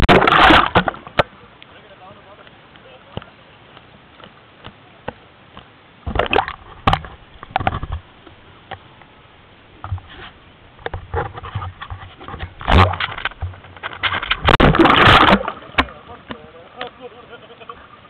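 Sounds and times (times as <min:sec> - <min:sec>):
water splashing at microphone: 0:00.0 - 0:01.7, 0:06.0 - 0:08.1, 0:09.8 - 0:18.0.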